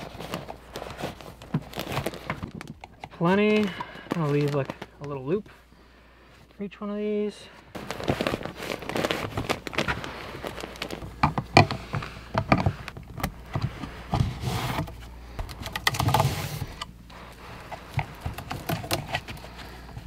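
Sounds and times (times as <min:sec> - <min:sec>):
cable handling clicks and knocks: 0:00.0 - 0:05.5, 0:07.8 - 0:20.0
paper insulation rustling: 0:00.0 - 0:05.7, 0:07.7 - 0:20.0.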